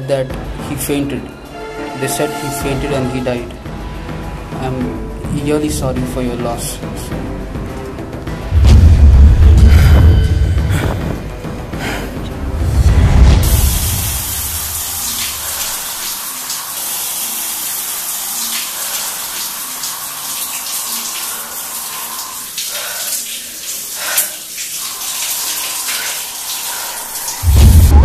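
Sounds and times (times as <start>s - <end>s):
shower water spraying: 8.4s - 28.0s.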